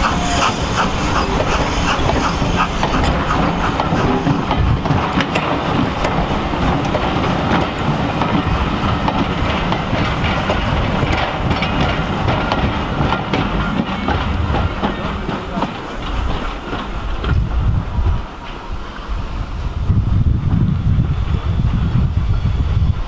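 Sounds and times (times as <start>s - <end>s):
wheels clicking over rail joints: 0.0s - 17.4s
train coaches rumbling past: 0.0s - 23.0s.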